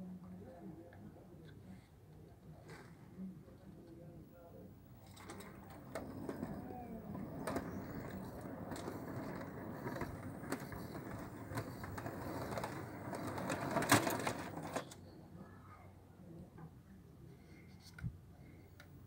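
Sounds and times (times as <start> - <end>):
model train wheels rumbling: 5.0 - 15.0
wheels clicking over rail joints: 5.0 - 15.0.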